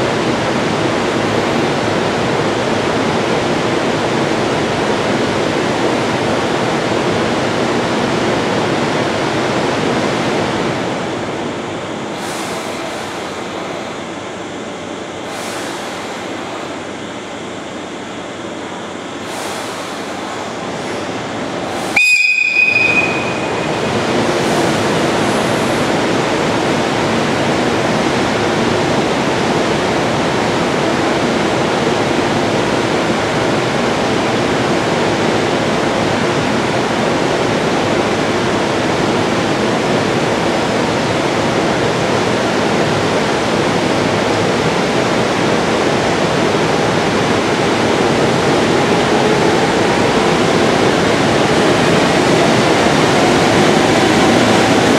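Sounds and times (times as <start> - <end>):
electric locomotive running: 0.0 - 54.9
high departure whistle: 21.7 - 24.3.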